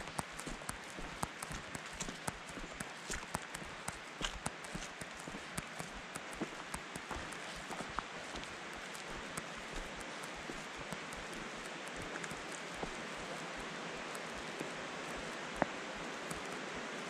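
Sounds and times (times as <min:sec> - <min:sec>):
footsteps on dirt and rock: 0:00.0 - 0:16.5
creek water rushing: 0:00.0 - 0:17.0.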